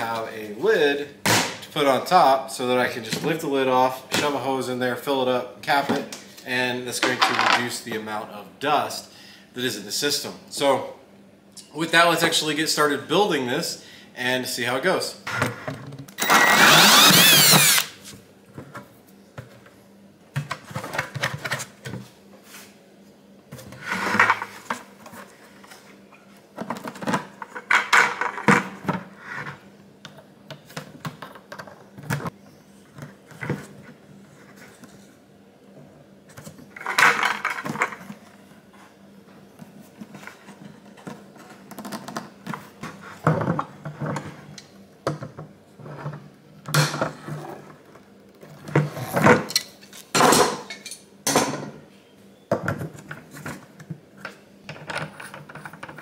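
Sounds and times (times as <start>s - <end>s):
cordless drill whining: 16.2s - 17.9s.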